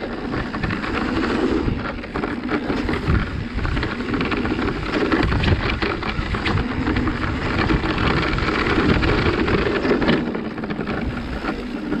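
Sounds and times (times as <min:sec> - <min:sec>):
bike rattling over bumps: 0:00.0 - 0:12.0
bike tyres rolling over dirt: 0:00.0 - 0:12.0
wind buffeting microphone: 0:00.0 - 0:12.0.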